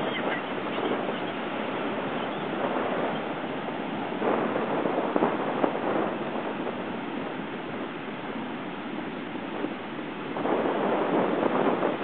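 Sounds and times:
surf breaking on beach: 0.0 - 12.0.

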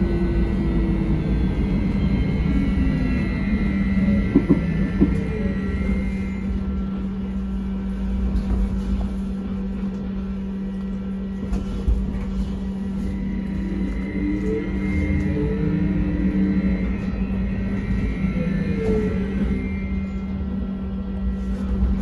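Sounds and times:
electrical hum: 0.0 - 22.0
high whine: 0.0 - 22.0
low rumble: 0.0 - 22.0.

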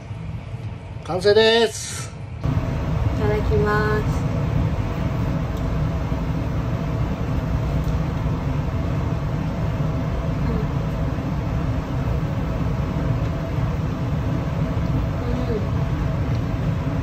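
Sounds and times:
kitchen equipment hum: 0.0 - 17.0.

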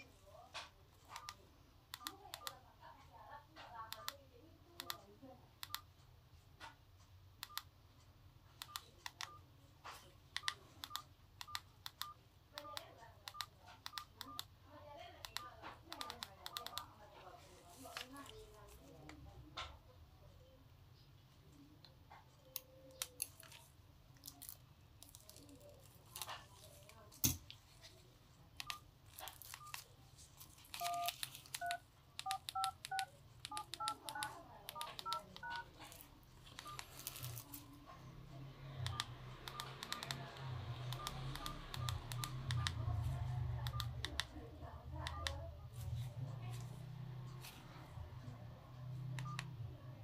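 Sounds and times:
dual-tone dialing beeps: 29.5 - 29.9, 30.8 - 35.8, 36.6 - 38.0, 38.7 - 44.1
short single key beeps: 30.8 - 33.0.

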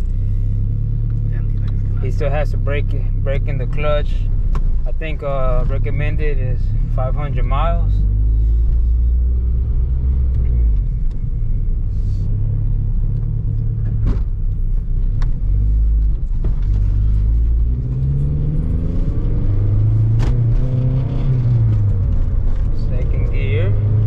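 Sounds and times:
car engine accelerating: 0.0 - 24.0.

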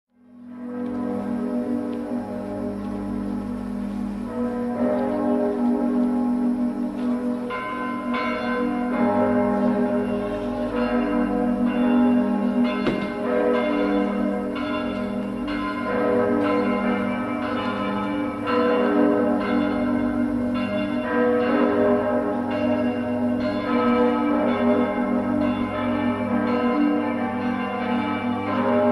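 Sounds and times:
church bells pealing: 0.2 - 28.9.

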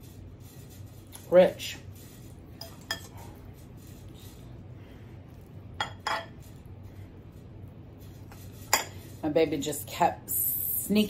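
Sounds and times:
cutlery clinking on glass dish: 5.8 - 6.4.

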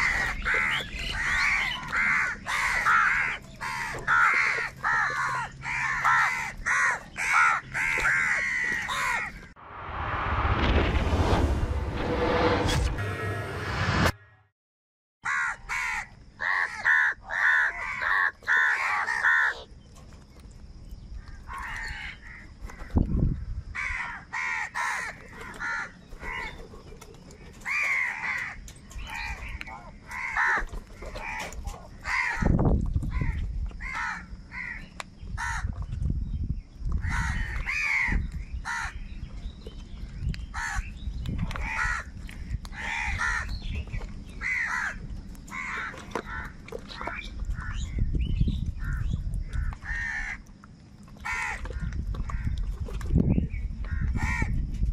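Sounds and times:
crows cawing harshly: 0.0 - 9.5, 15.2 - 19.7, 21.3 - 23.0, 23.7 - 26.6, 27.6 - 34.8, 35.4 - 35.7, 37.0 - 39.0, 40.5 - 40.9, 41.6 - 43.6, 44.4 - 47.8, 48.8 - 50.4, 51.2 - 52.6, 53.9 - 54.6
low thumps: 9.6 - 14.2.

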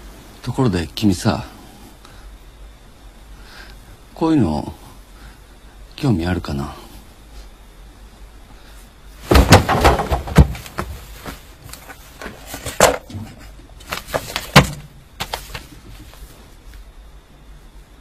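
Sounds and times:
objects knocking and thumping: 9.2 - 16.2.

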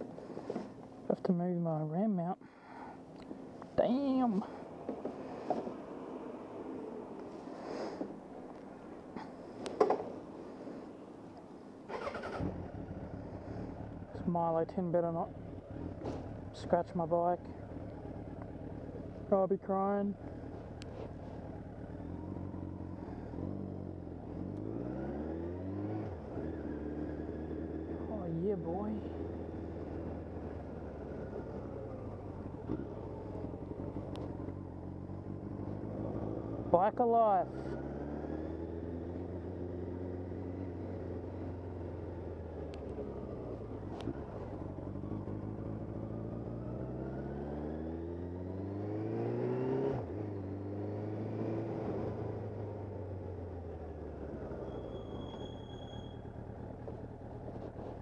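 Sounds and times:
motorcycle engine revving: 11.9 - 58.0.

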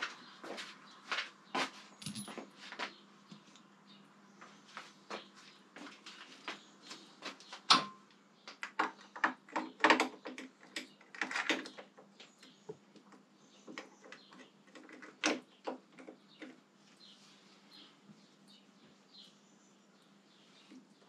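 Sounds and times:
metal parts and tools clinking: 2.0 - 2.4.

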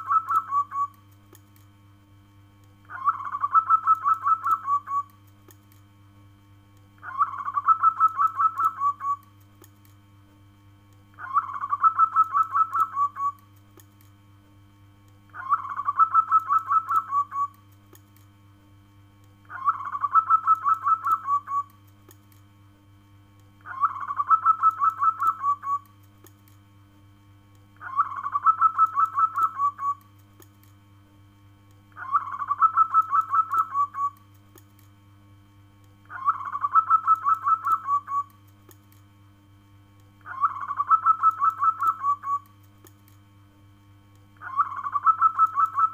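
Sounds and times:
dove cooing: 0.0 - 0.9, 2.9 - 5.1, 11.2 - 13.4, 15.4 - 17.5, 19.5 - 21.7, 23.7 - 25.8, 27.8 - 30.0, 32.0 - 34.2, 36.1 - 38.3, 40.3 - 42.4, 44.4 - 45.9
faint low hum: 0.0 - 45.9.

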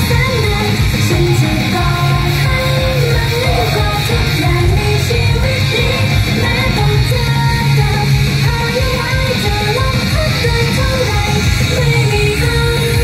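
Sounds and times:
female group singing in unison: 0.0 - 13.0
loud rock instrumental backing: 0.0 - 13.0.

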